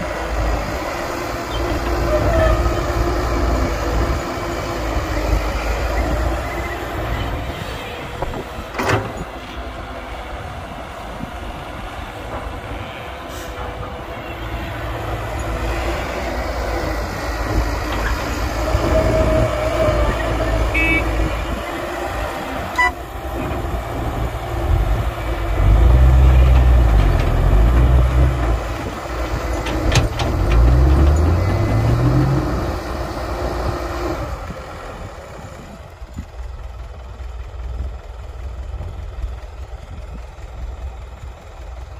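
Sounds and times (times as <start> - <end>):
diesel machinery engine rumbling: 0.0 - 41.9.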